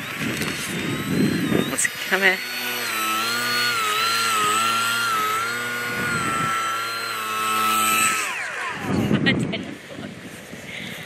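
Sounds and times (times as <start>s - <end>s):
electric motor and propeller whining: 0.0s - 11.0s.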